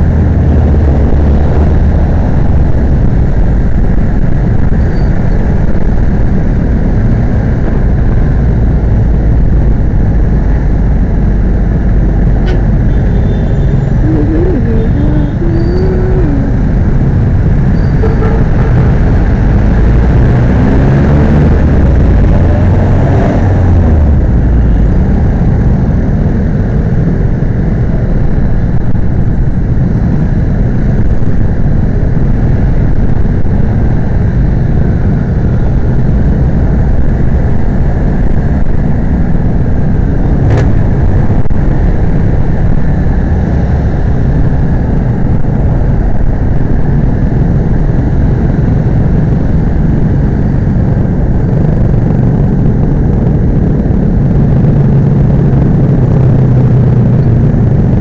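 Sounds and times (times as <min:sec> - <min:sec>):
wind rumble on microphone: 0:00.0 - 0:58.0
nearby traffic engines: 0:10.5 - 0:27.2.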